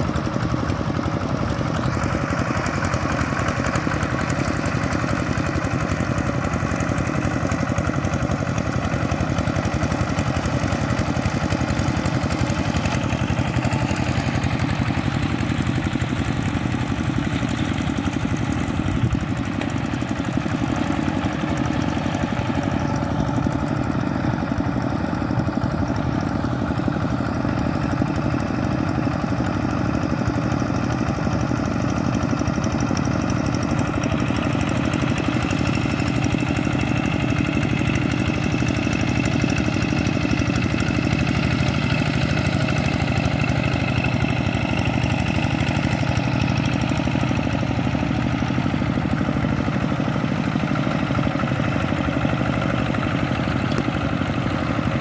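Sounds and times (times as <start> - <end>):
diesel tractor engines running: 0.0 - 55.0.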